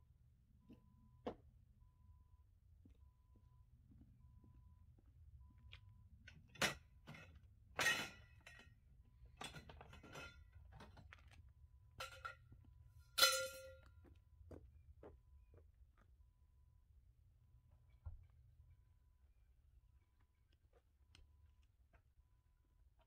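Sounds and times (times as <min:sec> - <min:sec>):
metal poles dropped on ground: 0:06.6 - 0:08.7, 0:09.4 - 0:10.9, 0:12.0 - 0:12.5, 0:13.1 - 0:13.9.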